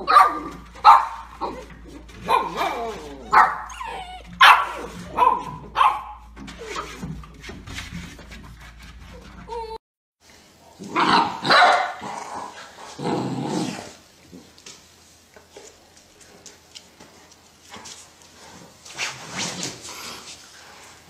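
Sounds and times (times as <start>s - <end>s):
dogs growling and barking: 0.0s - 7.2s, 10.8s - 14.5s.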